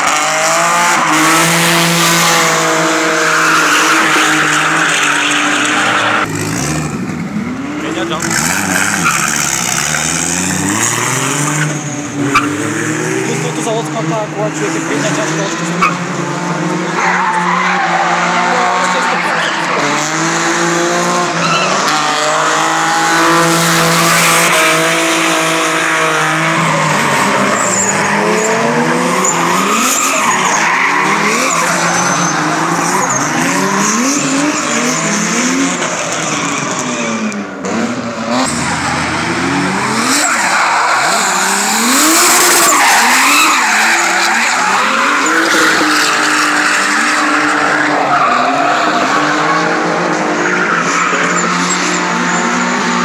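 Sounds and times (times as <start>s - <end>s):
car engine revving: 0.0s - 53.0s
tyres screeching: 24.1s - 37.8s, 38.4s - 52.8s.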